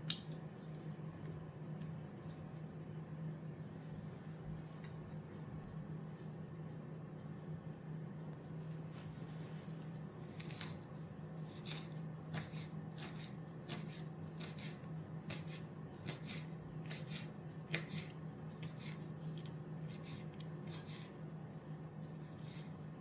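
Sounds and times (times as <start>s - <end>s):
low steady hum: 0.0s - 23.0s
knife cutting or scraping: 10.3s - 10.8s, 11.5s - 21.2s.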